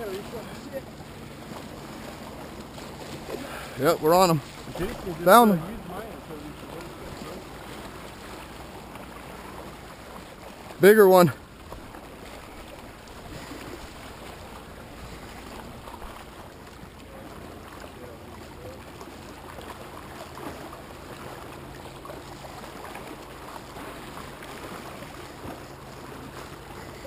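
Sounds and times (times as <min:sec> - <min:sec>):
water lapping on rocky shore: 0:00.0 - 0:27.0
wind: 0:00.0 - 0:27.0.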